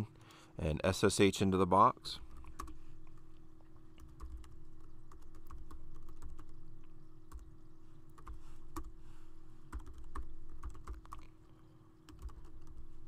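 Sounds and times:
keyboard typing: 0:02.3 - 0:03.2, 0:04.0 - 0:07.5, 0:08.1 - 0:08.9, 0:09.7 - 0:11.3, 0:12.0 - 0:13.0.

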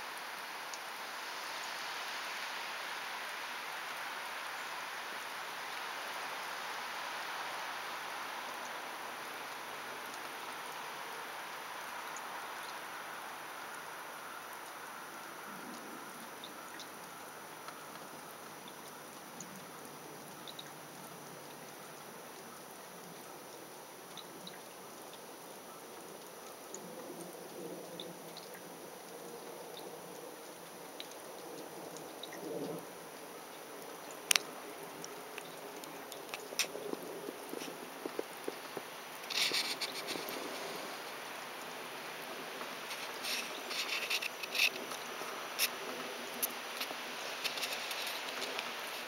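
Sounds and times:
faint hiss of falling snow: 0:00.0 - 0:49.0
short rustle: 0:38.7 - 0:41.2, 0:42.6 - 0:46.0, 0:46.8 - 0:49.0.

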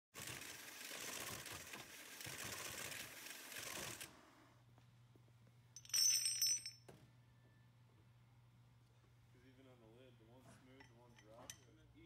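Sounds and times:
faint hum: 0:06.9 - 0:12.0.

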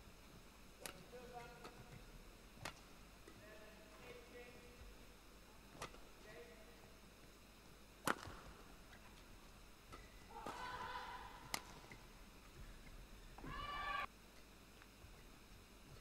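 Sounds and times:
rackets hitting shuttlecock: 0:00.8 - 0:03.5, 0:05.7 - 0:06.2, 0:08.0 - 0:09.2, 0:09.9 - 0:12.2.

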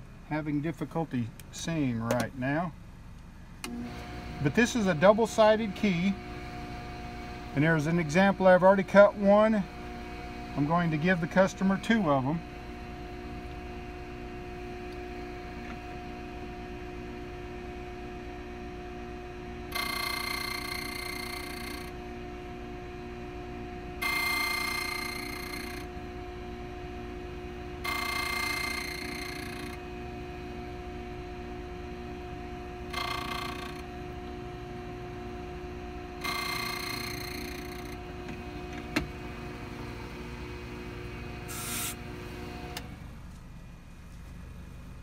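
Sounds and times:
machine motor hum: 0:03.6 - 0:45.0
cutter grinding key blank: 0:19.7 - 0:22.0, 0:24.0 - 0:26.0, 0:27.8 - 0:30.0, 0:32.8 - 0:34.3, 0:36.2 - 0:39.2.

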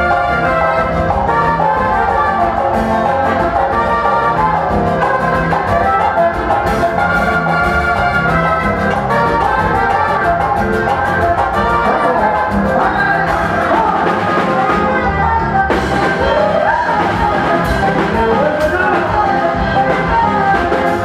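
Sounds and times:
live band playing dance music: 0:00.0 - 0:21.0
person singing: 0:09.1 - 0:21.0.

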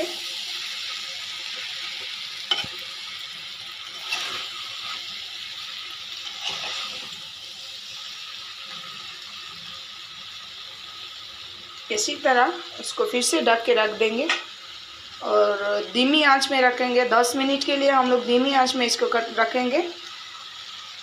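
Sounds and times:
pumpkin sizzling in a pan: 0:00.0 - 0:21.0
spatula scraping a pan: 0:03.9 - 0:05.2, 0:06.2 - 0:07.2.

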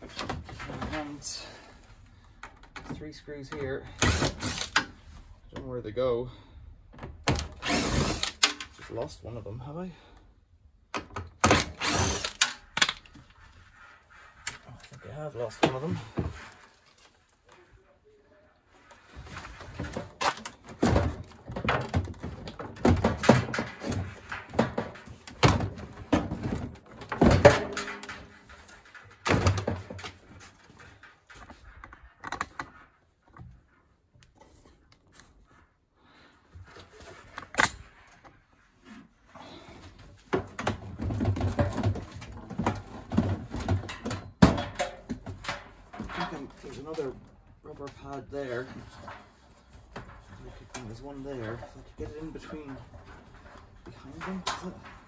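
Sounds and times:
knocks and rattles of dryer parts: 0:00.0 - 0:05.8, 0:06.9 - 0:10.1, 0:10.8 - 0:11.8, 0:14.0 - 0:16.8, 0:19.1 - 0:33.7, 0:39.4 - 0:55.0.

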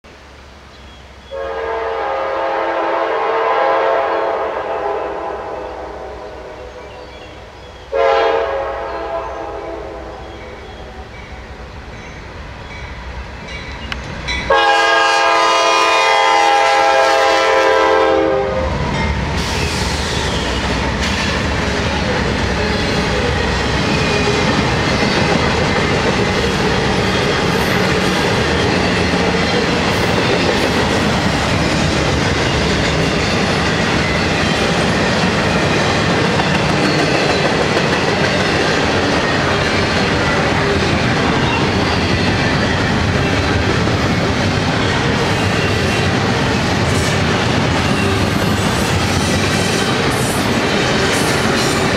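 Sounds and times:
train air horn: 0:01.3 - 0:07.0, 0:07.9 - 0:11.2, 0:14.5 - 0:18.8
train wheels rumbling on rails: 0:04.4 - 0:51.9.

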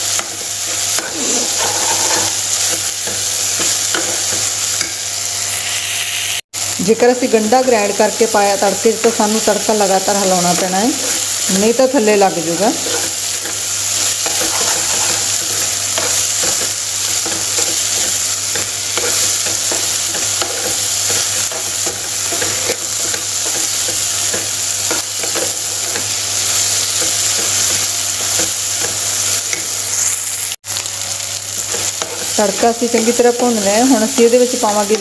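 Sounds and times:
masala sizzling in oil: 0:00.0 - 0:35.0
metal spoon scraping a pan: 0:00.7 - 0:04.9, 0:12.8 - 0:28.6.

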